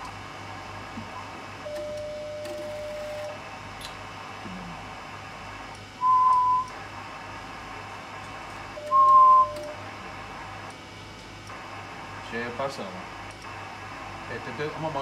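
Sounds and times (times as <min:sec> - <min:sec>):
low steady hum: 0:00.0 - 0:15.0
short electronic beeps: 0:06.0 - 0:06.7, 0:08.8 - 0:09.8.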